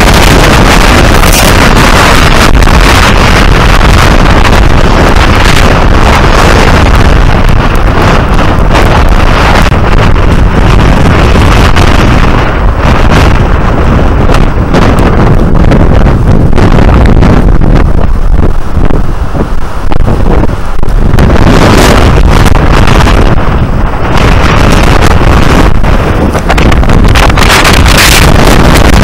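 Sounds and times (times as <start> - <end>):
surf breaking on rocks: 0.0 - 14.0, 20.0 - 29.0
strong wind buffeting microphone: 0.0 - 29.0.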